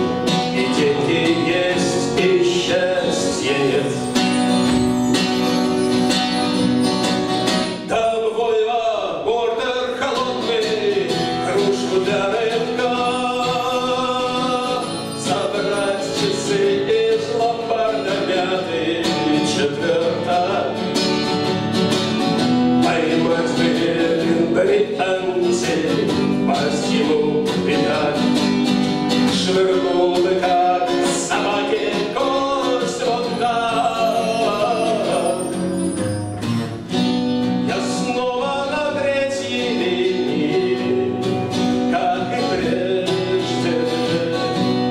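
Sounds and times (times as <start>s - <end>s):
man singing: 0.0s - 4.4s, 7.6s - 21.0s, 22.8s - 36.0s, 37.6s - 44.9s
strummed acoustic guitar: 0.0s - 44.9s.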